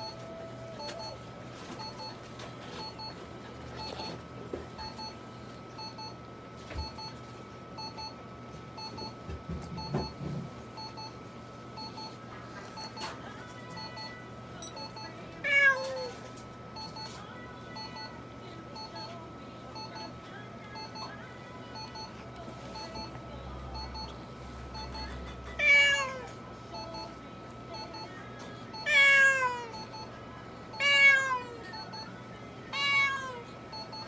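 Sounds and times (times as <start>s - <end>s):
cat meowing: 25.6s - 26.3s, 28.9s - 29.7s, 30.8s - 31.5s, 32.8s - 33.4s.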